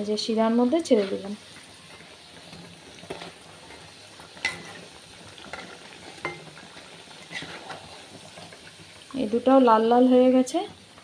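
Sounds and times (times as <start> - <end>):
food sizzling in hot oil: 0.0 - 11.0
metal spoon clinking on pan: 4.4 - 4.8, 5.5 - 6.5.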